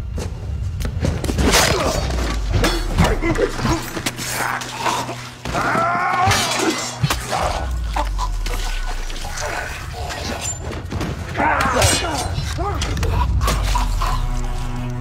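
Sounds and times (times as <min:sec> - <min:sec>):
low droning score: 0:00.0 - 0:15.0
sword blades clashing: 0:01.4 - 0:07.8, 0:11.5 - 0:13.1.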